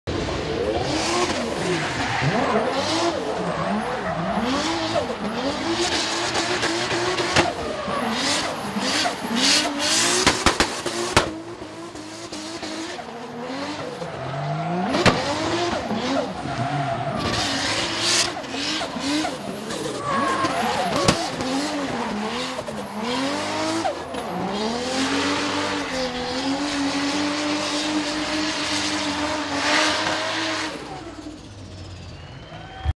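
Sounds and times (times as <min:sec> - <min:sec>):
car engine revving hard: 0:00.2 - 0:31.3
tyres squealing and skidding: 0:00.5 - 0:32.9.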